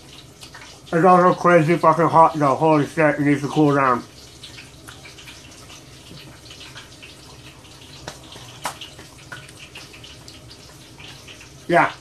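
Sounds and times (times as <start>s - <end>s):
shrimp sizzling in hot oil: 0.0s - 12.0s.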